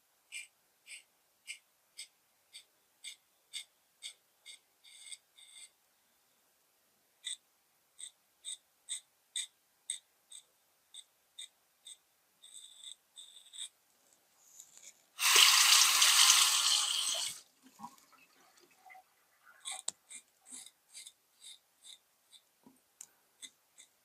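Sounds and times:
water tap running: 0:15.2 - 0:19.0.

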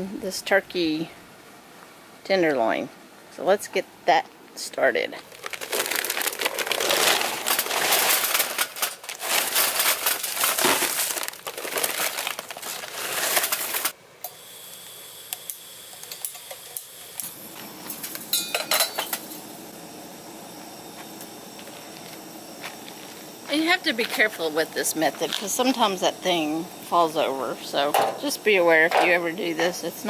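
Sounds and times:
paper bag crinkling: 0:05.2 - 0:14.0
charcoal clattering into metal chimney: 0:06.9 - 0:11.9, 0:12.5 - 0:13.9, 0:17.8 - 0:19.4
gas burner hiss: 0:13.4 - 0:30.0.

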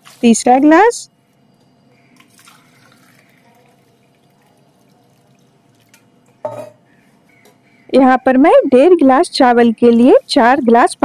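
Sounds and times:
water dripping into pot: 0:02.2 - 0:07.6.

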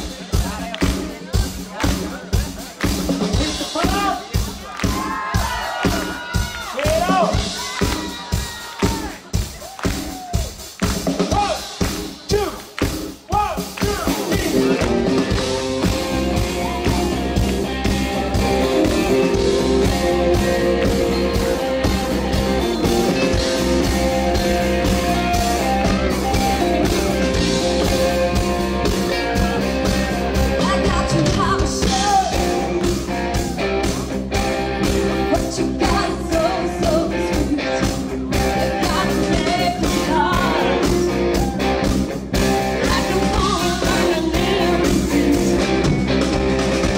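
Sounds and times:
live rock band playing: 0:00.0 - 0:46.9
woman singing: 0:30.6 - 0:32.6, 0:35.3 - 0:38.0, 0:38.7 - 0:41.0, 0:42.8 - 0:45.8.

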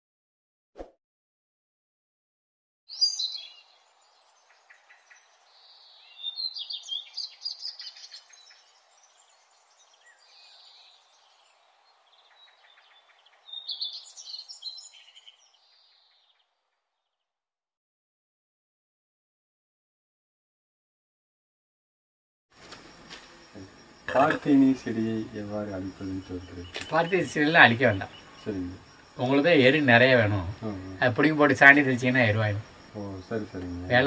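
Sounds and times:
birds chirping and trilling: 0:02.9 - 0:17.3, 0:22.6 - 0:34.0
faint steady background: 0:22.5 - 0:34.0.

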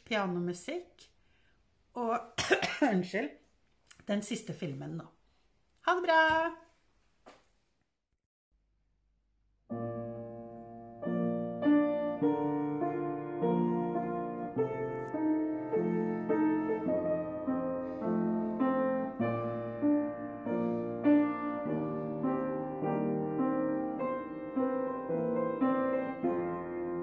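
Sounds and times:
solo piano music: 0:09.6 - 0:27.0.

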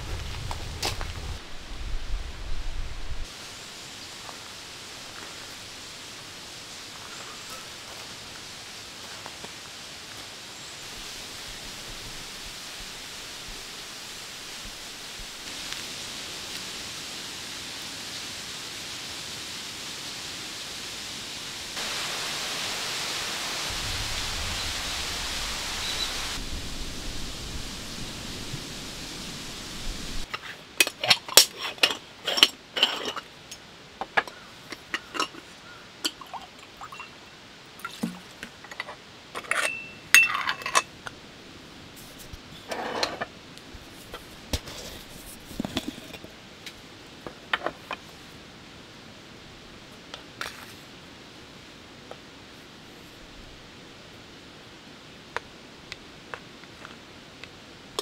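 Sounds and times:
steady outdoor hiss: 0:00.0 - 0:58.0
metallic clinks and scrapes: 0:30.3 - 0:33.6, 0:38.6 - 0:40.9.

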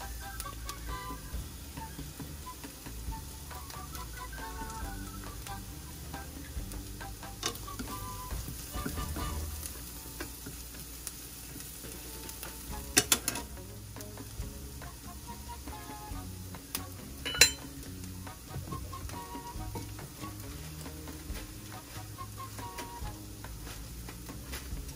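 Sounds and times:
food sizzling in a skillet: 0:00.0 - 0:24.9
chopsticks scraping a pan: 0:12.0 - 0:13.6
chopsticks clicking on a pan: 0:12.4 - 0:13.5.

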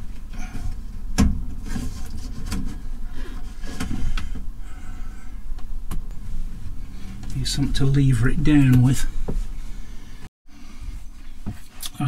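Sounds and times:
knocks scrapes and rattles: 0:00.0 - 0:04.4
steady low hum: 0:00.0 - 0:12.0.

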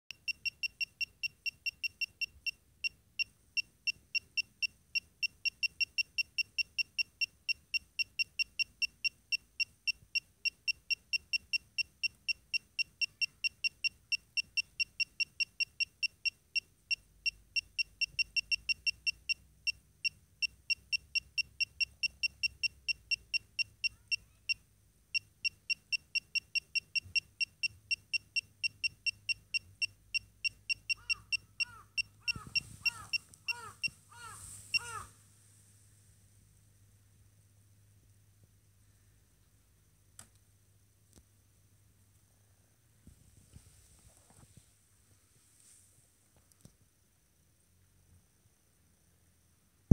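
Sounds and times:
dosimeter beeping chirps: 0:00.1 - 0:24.6, 0:25.2 - 0:35.0.

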